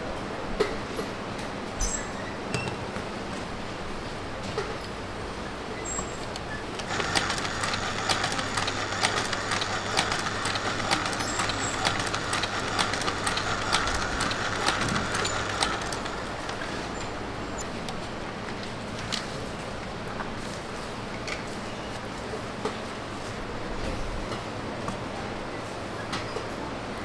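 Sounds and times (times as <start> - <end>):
machine whirring and clicking: 5.8 - 19.3.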